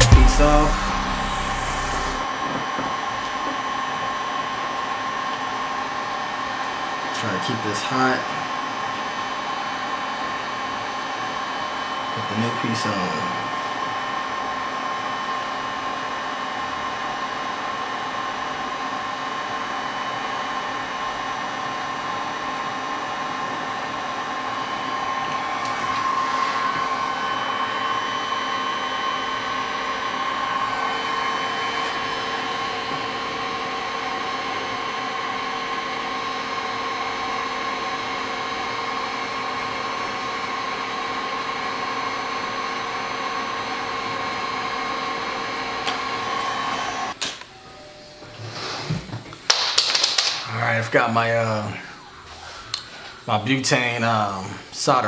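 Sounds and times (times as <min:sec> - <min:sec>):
hot-air gun blowing: 0:00.0 - 0:02.3.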